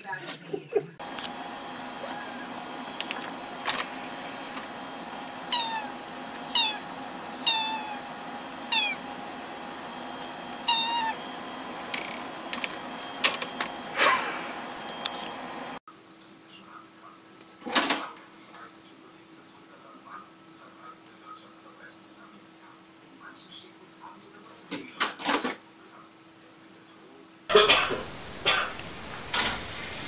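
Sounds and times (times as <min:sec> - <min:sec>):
steady background hum: 0:00.0 - 0:17.5
cat meowing: 0:05.4 - 0:09.0, 0:10.6 - 0:11.3.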